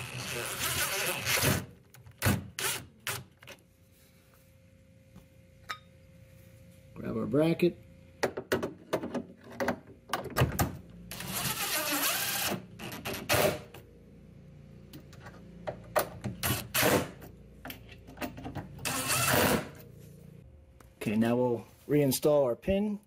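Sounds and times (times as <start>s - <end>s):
drill driving screws: 0.0s - 3.3s, 11.1s - 13.6s, 16.4s - 17.2s, 18.8s - 19.8s.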